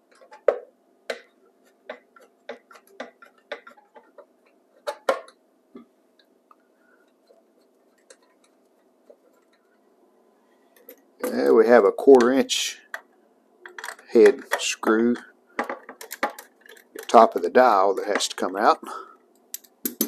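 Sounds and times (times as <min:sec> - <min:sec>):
screwdriver clicks and taps: 0:19.6 - 0:20.0.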